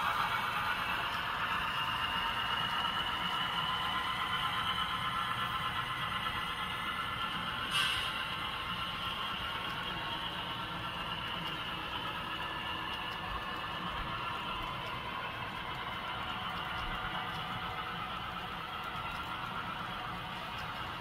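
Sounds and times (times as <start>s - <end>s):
model train wheels whirring on rail: 0.0s - 21.0s.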